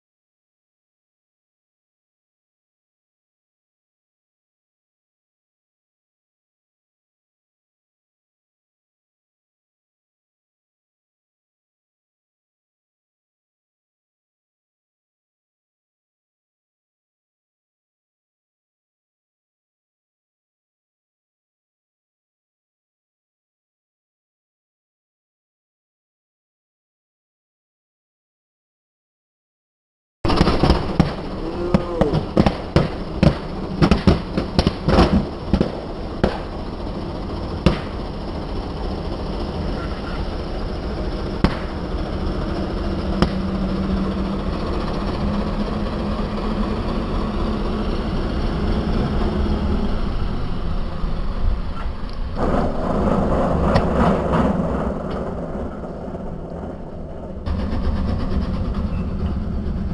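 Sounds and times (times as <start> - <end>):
tractor engine running: 30.3 - 59.9.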